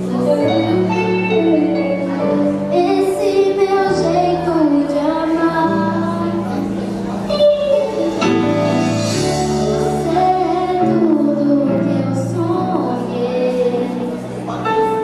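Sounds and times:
girl singing into a microphone: 0.1 - 8.1, 9.0 - 15.0.

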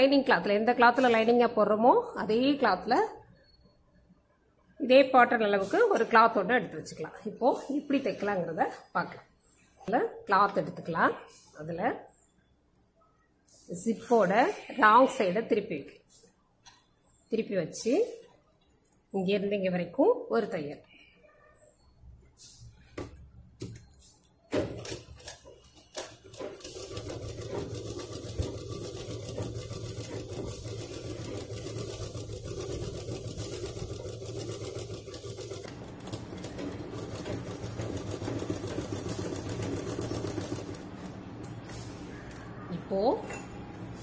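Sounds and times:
sewing machine stitching: 24.6 - 42.4.

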